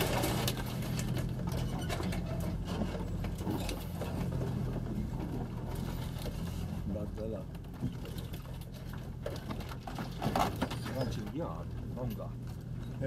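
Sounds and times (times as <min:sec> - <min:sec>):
vehicle engine low drone: 0:00.0 - 0:10.2.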